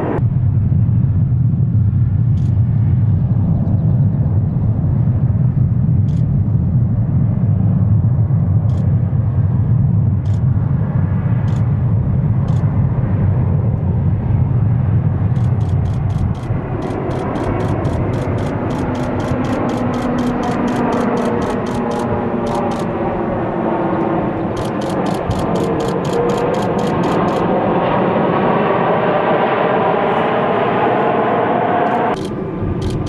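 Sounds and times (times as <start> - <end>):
jet engines low rumble: 0.0 - 33.0
faint fast ticks: 15.4 - 22.9, 24.6 - 27.4, 32.1 - 33.0.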